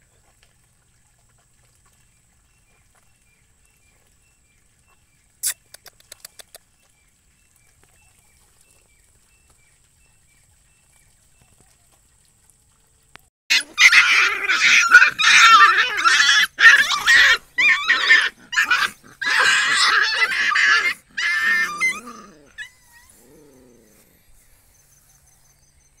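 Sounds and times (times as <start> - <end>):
puppies low growls: 8.1 - 25.6
puppies squealing growls and yelps: 13.5 - 24.5.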